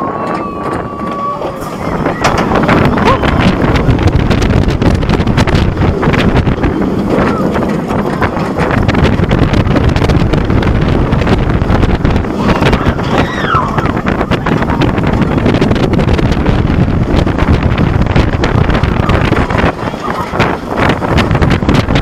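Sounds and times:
roller coaster train rumbling: 0.0 - 22.0
wind rushing over microphone: 0.0 - 22.0
rider crying out: 2.9 - 3.6.

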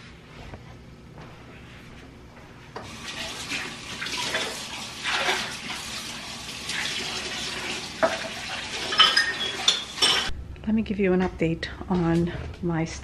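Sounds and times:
water running into sink: 2.8 - 10.3.

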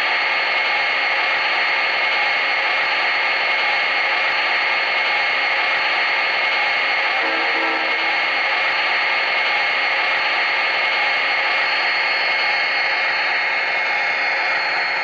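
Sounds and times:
model train engine idling sound: 7.0 - 11.6
faint pitched sound: 7.2 - 8.6.

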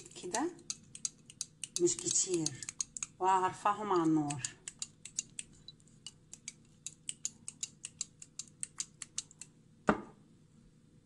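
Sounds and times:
loud thump: 9.9 - 10.2.

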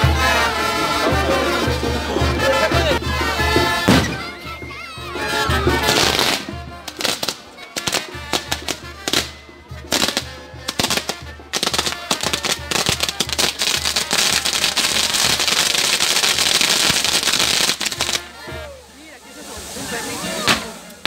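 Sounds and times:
fireworks crackling and hissing: 0.0 - 21.0
firecracker bangs: 3.2 - 4.4, 5.7 - 21.0.

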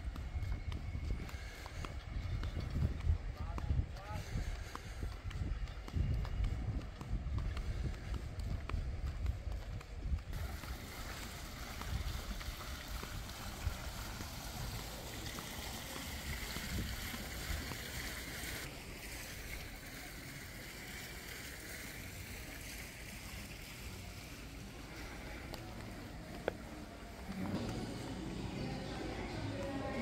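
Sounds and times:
wind buffeting microphone: 0.0 - 18.6.

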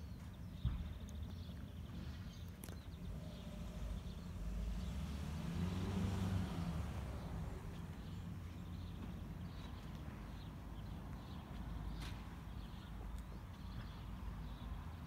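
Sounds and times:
small engine passing by: 2.9 - 8.9.

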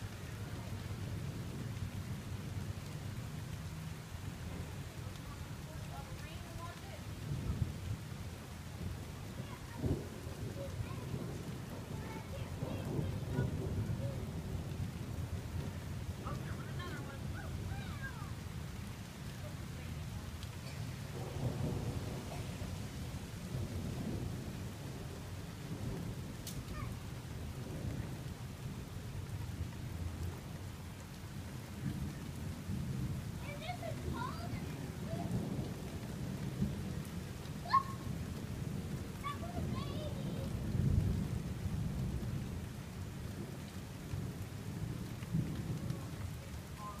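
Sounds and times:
rain falling: 0.0 - 47.0
thunder rumbling: 0.0 - 47.0.

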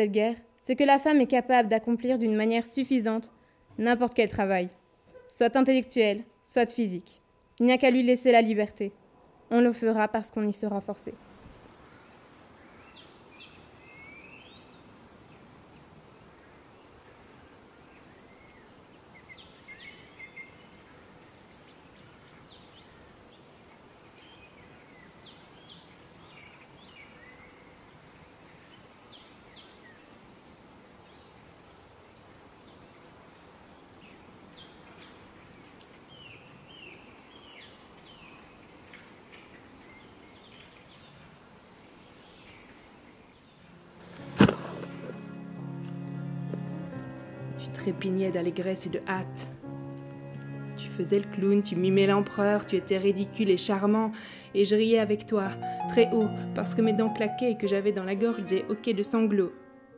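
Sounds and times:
steady low hiss: 3.8 - 58.2
bird calls and chirps: 11.2 - 45.3.

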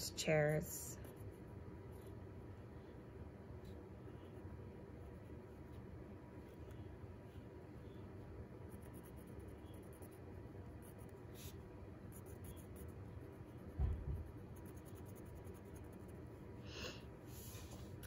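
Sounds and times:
pencil scratching on paper: 8.6 - 16.4
low thump: 13.8 - 14.3.

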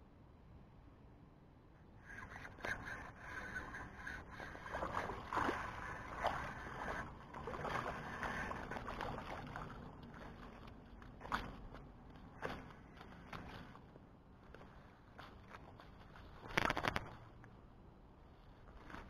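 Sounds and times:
fish splashing in water: 2.2 - 13.6.

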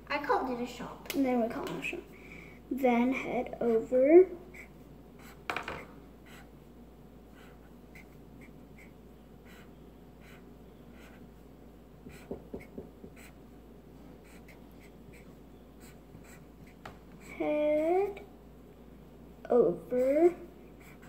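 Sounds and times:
marker scratching on paper: 3.6 - 6.6, 7.3 - 11.4, 12.0 - 13.5, 14.2 - 18.2, 19.9 - 21.0
marker taps: 5.4 - 5.9, 12.0 - 13.3.

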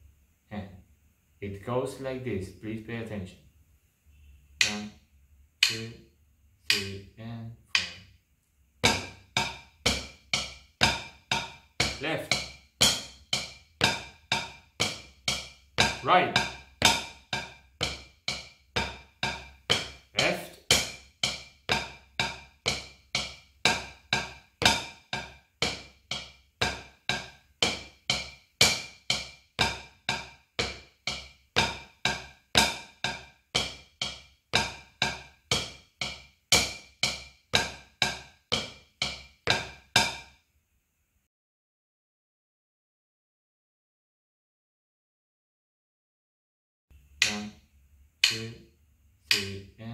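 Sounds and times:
drumsticks striking practice pad: 4.6 - 5.0, 5.6 - 6.0, 6.6 - 7.0, 7.7 - 8.1, 8.8 - 40.4, 47.2 - 47.6, 48.2 - 48.6, 49.3 - 49.6.

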